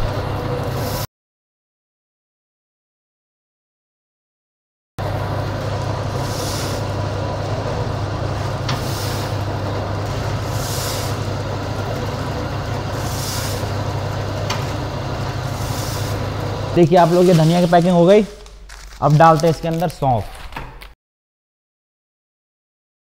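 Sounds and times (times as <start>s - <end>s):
packing machine humming: 0.0s - 1.0s, 5.0s - 21.0s.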